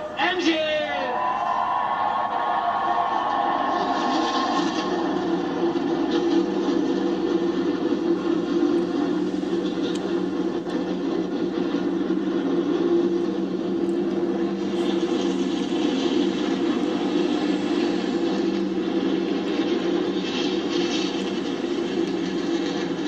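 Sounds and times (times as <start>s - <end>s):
stock car engines droning: 1.4s - 23.0s.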